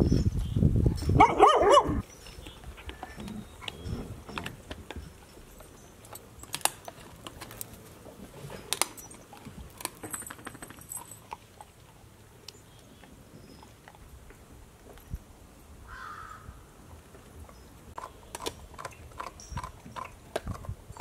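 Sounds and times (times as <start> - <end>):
dogs gnawing bones: 2.4 - 15.0, 17.4 - 21.0
metal chains clinking: 4.2 - 7.6, 8.4 - 11.8, 18.0 - 21.0.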